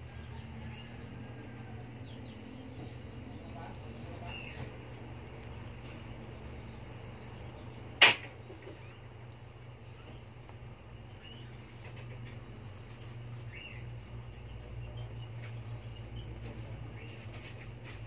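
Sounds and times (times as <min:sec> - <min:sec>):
steady low hum: 0:00.0 - 0:18.0
sharp click: 0:08.0 - 0:08.3.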